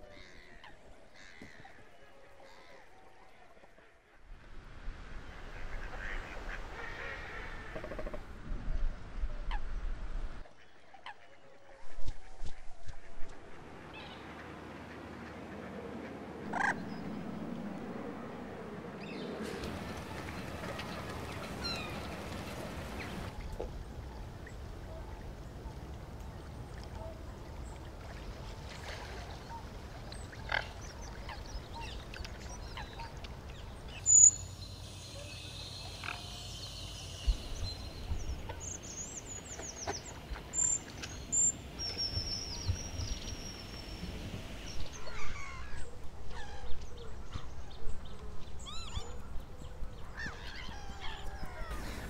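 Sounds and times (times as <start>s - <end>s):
birds chirping and trilling: 13.9s - 23.3s, 29.5s - 52.0s.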